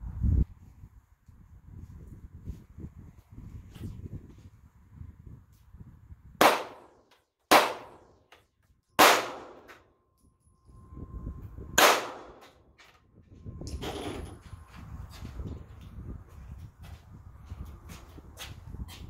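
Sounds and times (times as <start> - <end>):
handgun shots with echo: 6.4 - 8.1, 9.0 - 9.8, 11.8 - 12.5.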